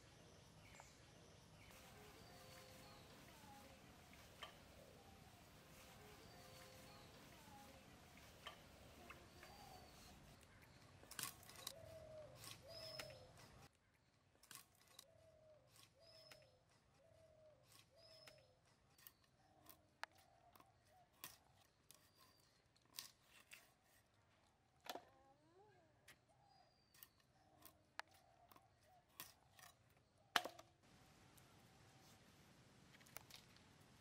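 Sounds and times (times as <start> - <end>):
bird calling: 0.0 - 13.8, 14.9 - 22.6
clicks and scrapes of fish cutting: 6.2 - 13.7, 14.4 - 17.0, 17.6 - 24.1, 26.9 - 30.0.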